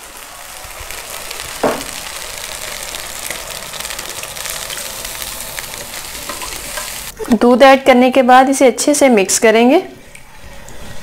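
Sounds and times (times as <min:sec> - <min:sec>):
milk pouring into a pan: 0:00.0 - 0:06.7
butter and cream sizzling: 0:00.0 - 0:07.2.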